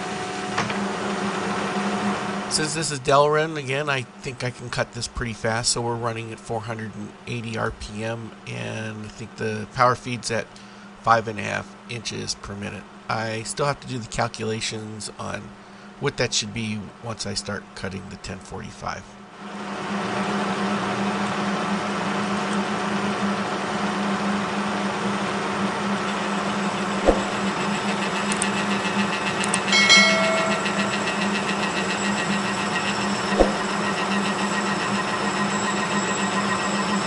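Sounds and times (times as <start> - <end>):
brief higher whine: 29.8 - 31.9.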